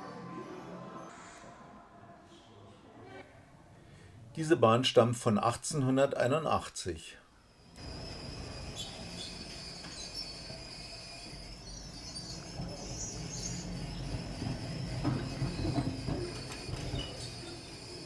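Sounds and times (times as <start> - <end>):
high-pitched whine: 7.6 - 18.0
tram wheels rumbling on track: 7.8 - 18.0.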